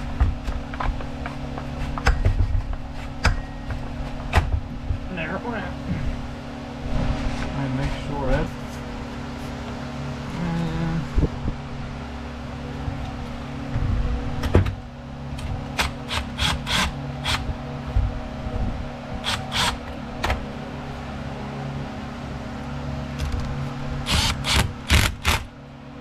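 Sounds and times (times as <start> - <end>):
steady low hum: 0.0 - 26.0
impact driver bursts: 19.2 - 19.8, 24.0 - 25.5.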